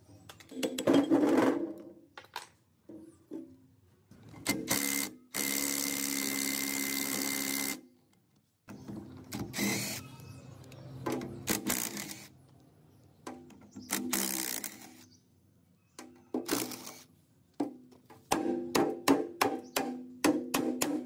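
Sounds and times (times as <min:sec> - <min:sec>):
knocks and clicks on metal parts: 0:17.6 - 0:21.0.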